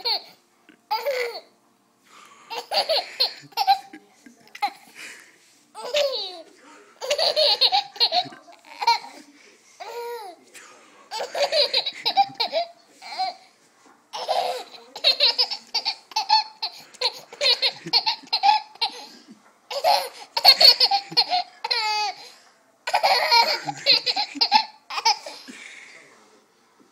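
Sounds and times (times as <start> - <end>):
toddler giggling: 7.0 - 9.2, 11.1 - 13.4, 14.2 - 19.1, 19.7 - 22.2.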